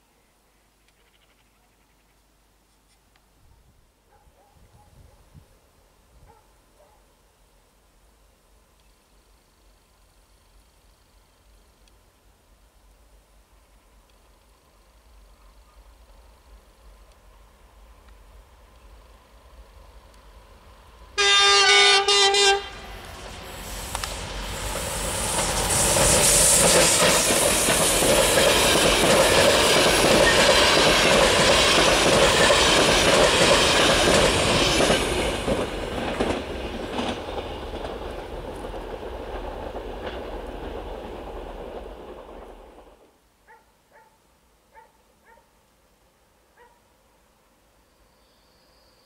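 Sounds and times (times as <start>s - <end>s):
locomotive horn blast: 21.2s - 23.0s
train wheels running over rails: 22.9s - 43.1s.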